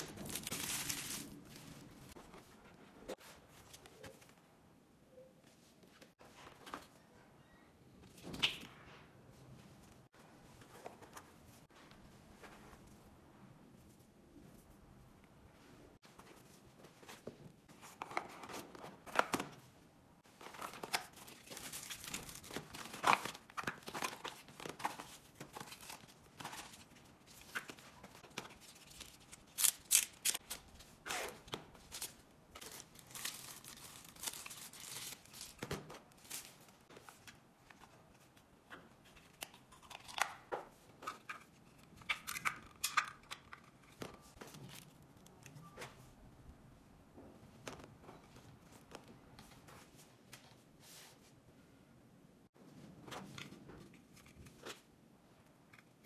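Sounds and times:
plastic bags rustling: 0.0s - 2.2s.

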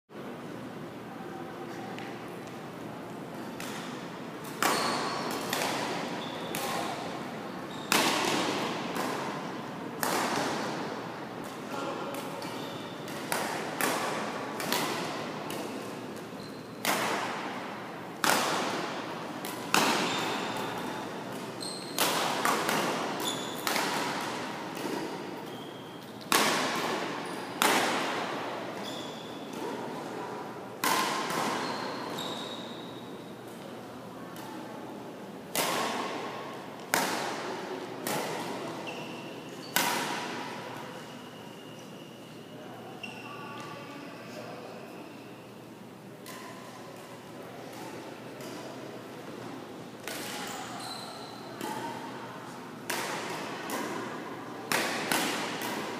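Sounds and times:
rackets striking shuttlecocks: 7.9s - 11.6s, 12.2s - 25.6s, 26.2s - 28.4s, 30.8s - 31.6s, 35.5s - 38.6s, 52.9s - 54.1s, 54.7s - 55.9s.

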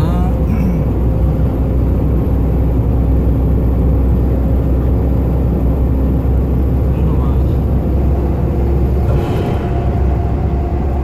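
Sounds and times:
truck engine and road noise: 0.0s - 11.0s.

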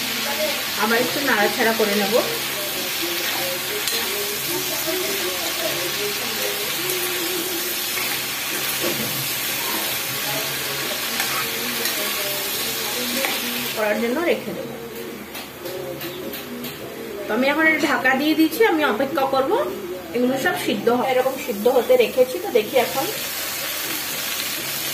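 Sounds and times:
vegetables sizzling in a pan: 0.0s - 14.5s, 20.3s - 24.9s.

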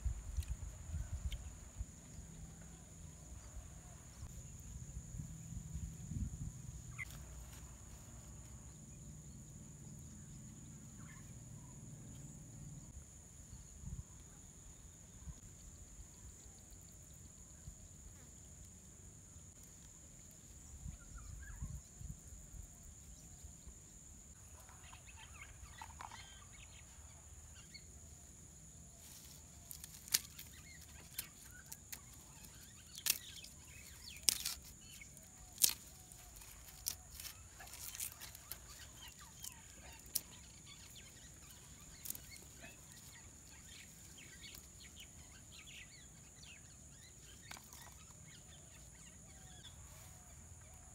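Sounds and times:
insect drone: 0.0s - 50.9s
garlic skins crackling: 29.0s - 44.7s.

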